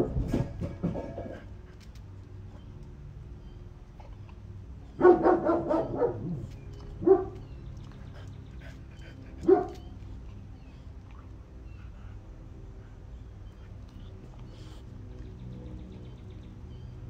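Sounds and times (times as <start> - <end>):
dog barking: 5.0 - 7.4, 9.4 - 9.8.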